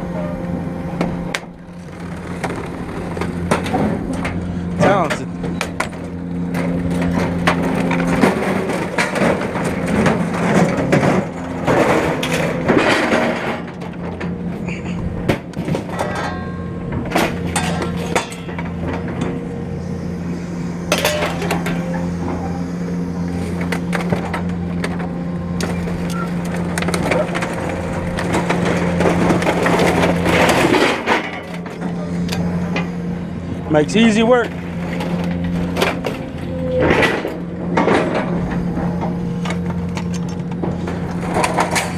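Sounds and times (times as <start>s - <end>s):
excavator diesel hum: 0.0s - 41.9s
grapple scraping wooden boards: 1.6s - 4.6s
scrap metal clattering and crashing: 1.8s - 19.7s, 20.9s - 22.6s, 23.3s - 33.7s, 34.4s - 41.9s.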